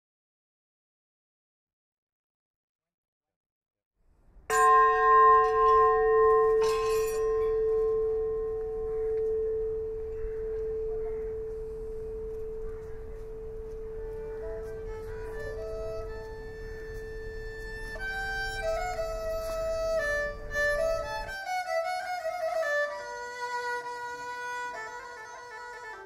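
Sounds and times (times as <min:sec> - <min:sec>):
metal bell ringing: 0:04.5 - 0:21.3.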